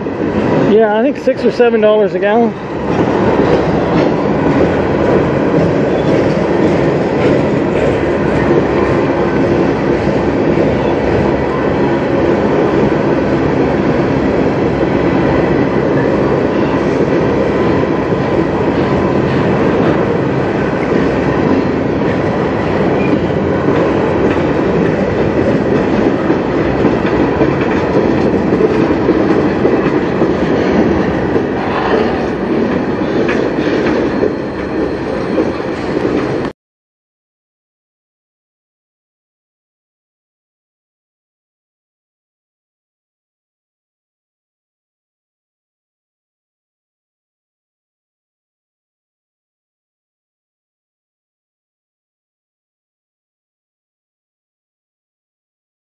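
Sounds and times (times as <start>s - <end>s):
freight train wheels rumbling on rails: 0.0s - 36.5s.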